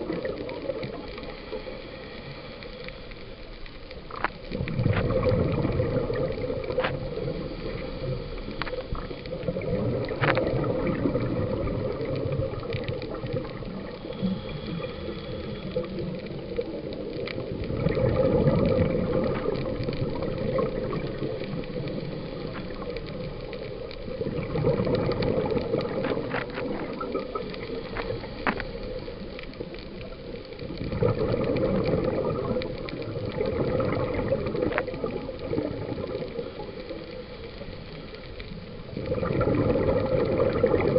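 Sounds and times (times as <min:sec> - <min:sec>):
steady background hiss: 0:00.0 - 0:30.9, 0:32.0 - 0:39.1
underwater exhaled bubbles rushing: 0:00.0 - 0:40.9.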